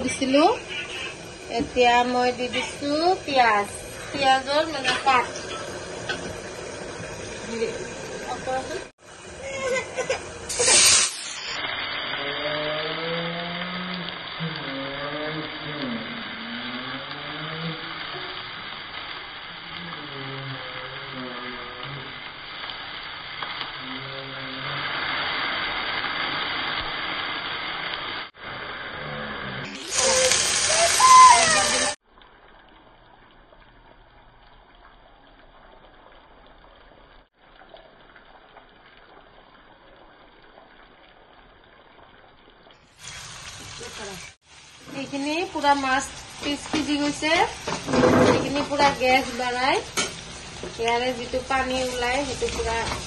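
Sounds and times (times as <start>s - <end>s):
onions frying in a wok: 0.0s - 53.0s
oil trickling into a wok: 29.8s - 53.0s.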